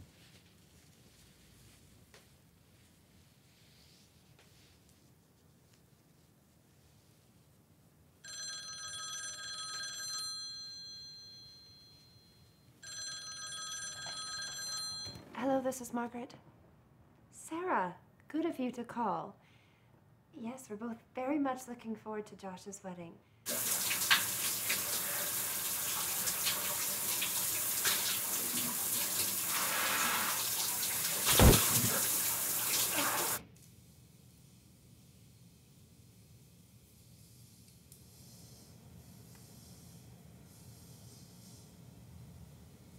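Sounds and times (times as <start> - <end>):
telephone ringing: 8.2 - 15.5
shower water splashing: 23.5 - 33.4
loud thump: 31.3 - 32.1.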